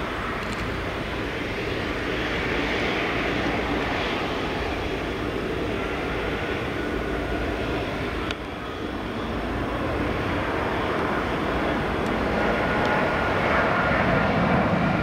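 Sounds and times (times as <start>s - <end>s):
jet airliner rumble and hiss: 0.0s - 15.0s.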